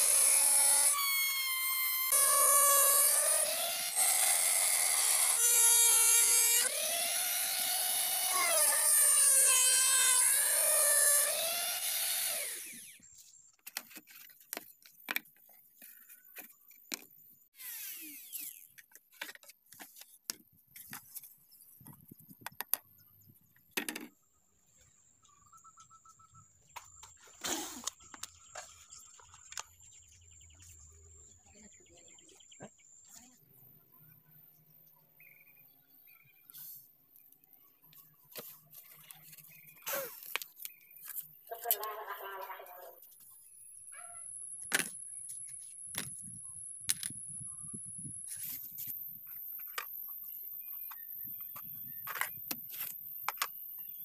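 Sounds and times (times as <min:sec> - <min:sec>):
rotary grinder cutting plastic pipe: 0:00.0 - 0:13.1, 0:17.6 - 0:18.9.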